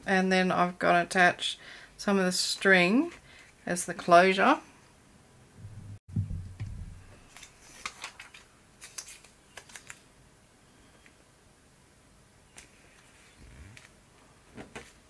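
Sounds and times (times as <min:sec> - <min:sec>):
soft low thumps: 0:05.6 - 0:07.3
paper clicks and rustles: 0:07.2 - 0:10.1, 0:12.5 - 0:14.0, 0:14.6 - 0:15.0.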